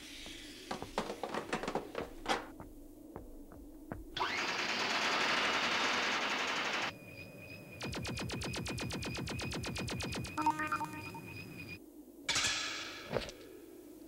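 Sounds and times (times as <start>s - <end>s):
loud steady hiss: 0.0s - 2.4s
metallic clicks and knocks: 0.7s - 2.6s.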